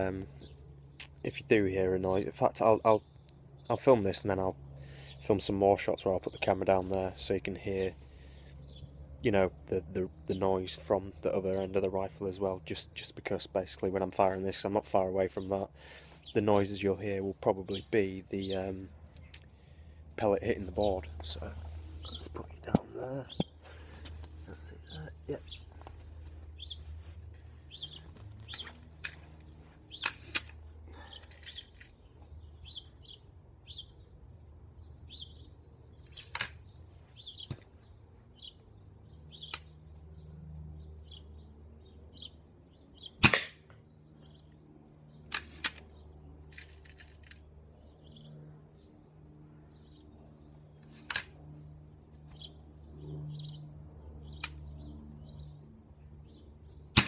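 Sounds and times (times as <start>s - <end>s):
air rifle shot crack: 43.2s - 43.6s.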